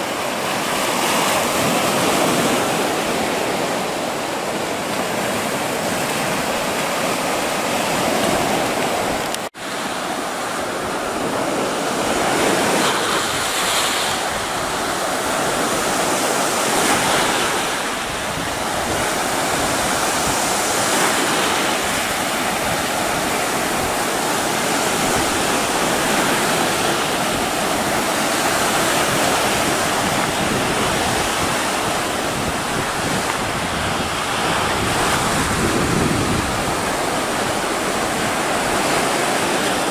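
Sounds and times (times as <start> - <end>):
waves washing up pebble beach: 0.2 - 39.9.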